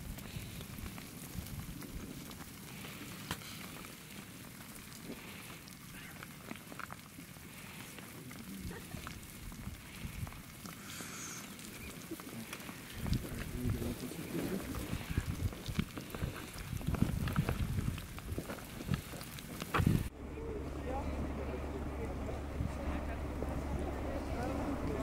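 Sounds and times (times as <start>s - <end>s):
lava crust crackling and clinking: 0.0s - 25.0s
low rumble: 19.8s - 25.0s.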